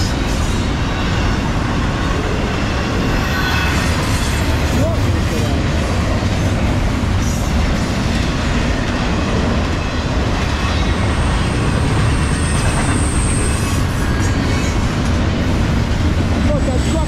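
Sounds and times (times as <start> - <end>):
freight train wheels clattering: 0.0 - 17.0
high-pitched squeal: 2.5 - 4.7, 10.5 - 14.8.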